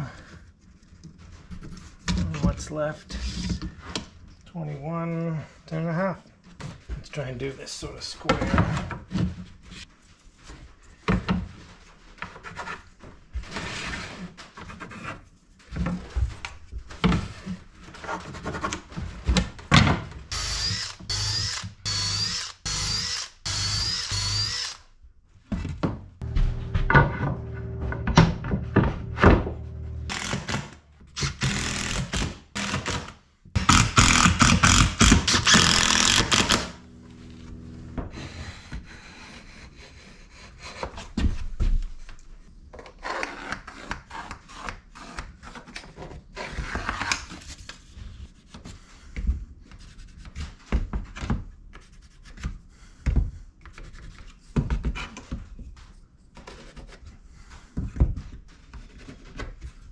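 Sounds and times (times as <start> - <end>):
cordless drill boring wood: 20.3 - 24.9, 30.1 - 36.9.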